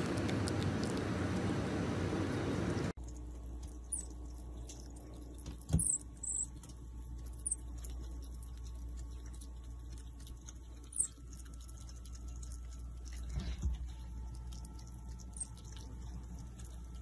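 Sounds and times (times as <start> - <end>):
marmoset high-pitched chirps: 3.9 - 4.1, 5.7 - 6.6, 7.4 - 7.6, 10.9 - 11.2.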